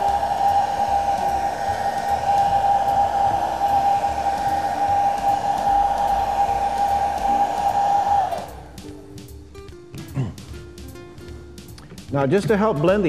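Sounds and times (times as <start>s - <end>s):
hot-air dryer whining: 0.0s - 9.4s.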